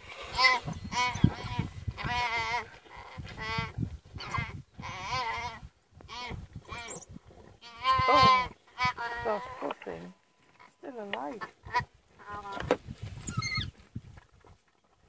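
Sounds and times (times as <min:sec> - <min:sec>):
young antelope bleating in distress: 0:03.4 - 0:07.0, 0:07.6 - 0:10.2.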